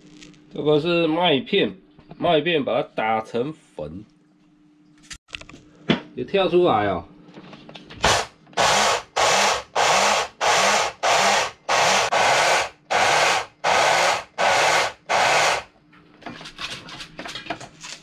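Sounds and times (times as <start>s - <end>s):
blender motor grinding oats: 8.0s - 15.7s.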